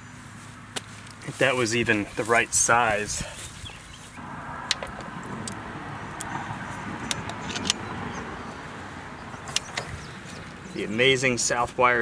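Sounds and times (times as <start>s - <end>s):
screwdriver and metal parts clicking: 7.1s - 7.8s.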